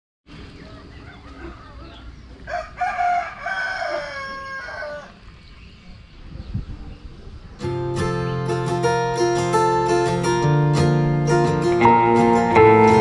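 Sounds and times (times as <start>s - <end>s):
rooster crowing: 0.8s - 5.2s.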